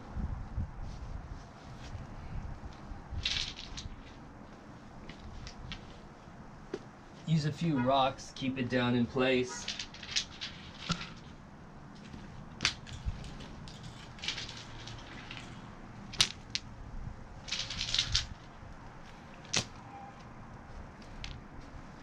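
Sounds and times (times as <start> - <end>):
fabric rustling: 0.8 - 7.3, 9.6 - 16.1, 17.3 - 19.6
stones clicking together: 9.7 - 11.3, 16.1 - 16.7, 17.4 - 18.5.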